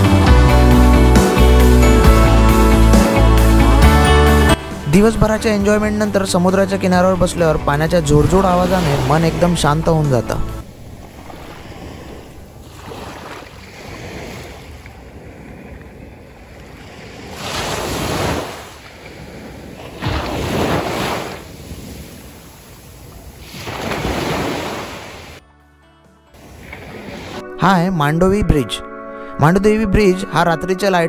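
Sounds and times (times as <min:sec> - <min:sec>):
small waves breaking on beach: 0:10.6 - 0:25.4, 0:26.4 - 0:27.4.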